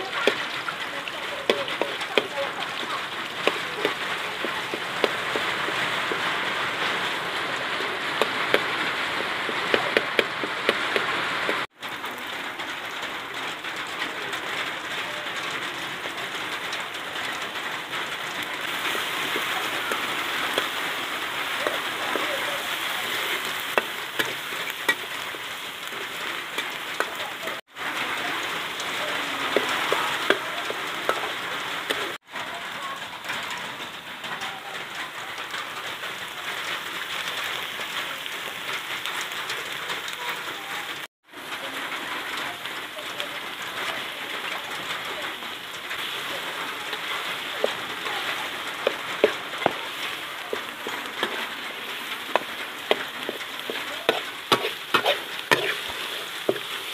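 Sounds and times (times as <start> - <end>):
food sizzling in a wok: 0.0 - 56.9
spatula scraping a pan: 46.0 - 56.9.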